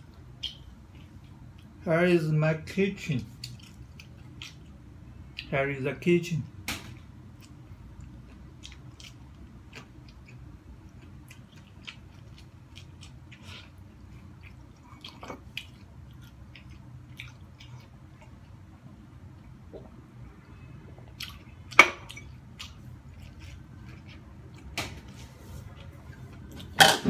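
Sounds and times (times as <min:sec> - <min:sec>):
faint low hum: 0:00.0 - 0:27.0
person chewing corn on the cob: 0:03.3 - 0:05.5, 0:07.4 - 0:19.4, 0:21.0 - 0:24.7.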